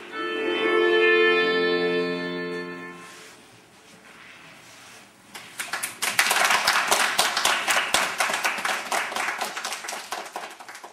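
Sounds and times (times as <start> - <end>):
audience applauding: 5.4 - 10.9.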